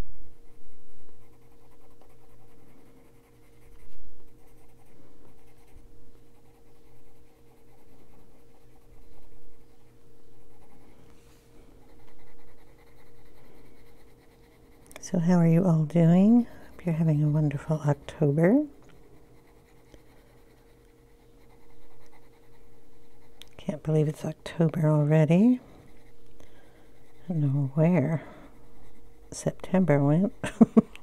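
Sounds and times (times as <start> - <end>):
pencil scratching on paper: 0.4 - 30.4.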